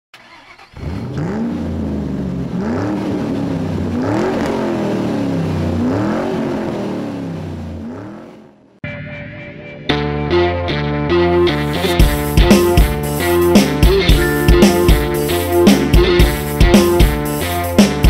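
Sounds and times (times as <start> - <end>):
vehicle engine revving: 0.2 - 8.8.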